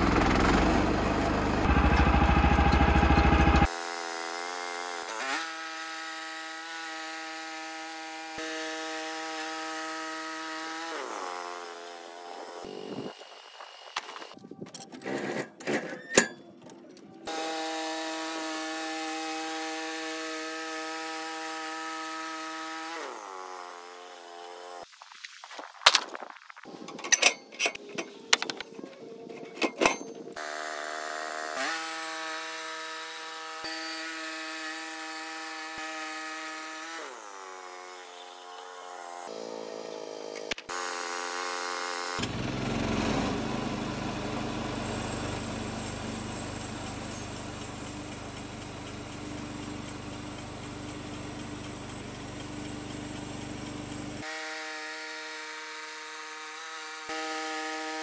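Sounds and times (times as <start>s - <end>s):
band blade cutting wood: 0.0s - 14.4s, 17.3s - 26.2s, 30.4s - 43.3s, 53.9s - 58.0s
sawmill engine running: 0.0s - 14.4s, 17.2s - 24.8s, 30.4s - 58.0s.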